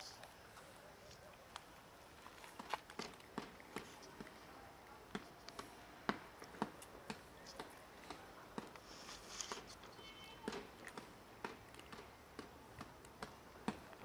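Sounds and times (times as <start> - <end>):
cats chewing food: 0.0 - 14.0.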